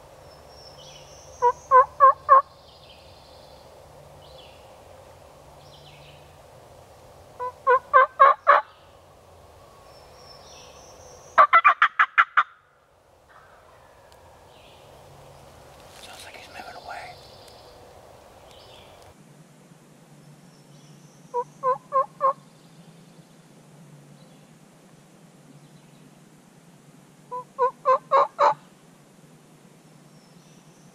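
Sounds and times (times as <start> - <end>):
faint songbirds singing: 0.0 - 6.7, 7.4 - 11.5, 13.3 - 19.2, 20.1 - 24.7, 25.4 - 27.8, 29.8 - 30.9
turkey call hen yelps: 1.4 - 2.5, 7.4 - 8.7, 11.4 - 12.6, 21.4 - 22.4, 27.3 - 28.6.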